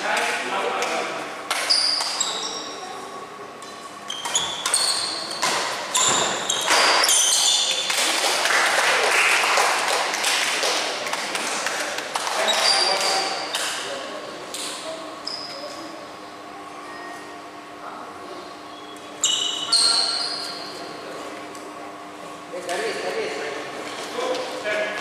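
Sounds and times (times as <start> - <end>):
shoes squeaking on court: 1.5 - 2.8, 4.0 - 7.9, 12.4 - 13.7, 15.2 - 15.8, 18.7 - 20.9
racket hitting shuttlecock: 4.2 - 7.2.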